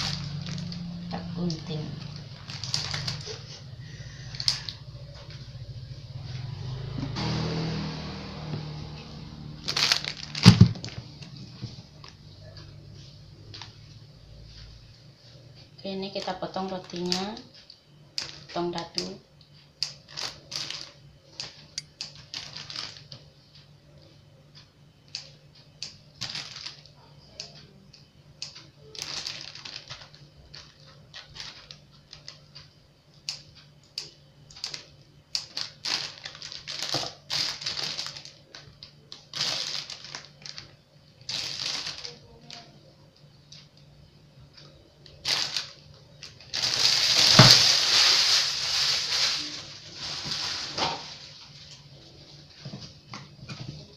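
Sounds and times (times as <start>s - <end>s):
plastic bag crinkling: 0.0s - 5.3s, 9.5s - 12.2s, 16.1s - 17.4s, 20.1s - 23.2s, 26.2s - 26.9s, 28.9s - 32.4s, 34.6s - 42.7s, 45.2s - 51.8s.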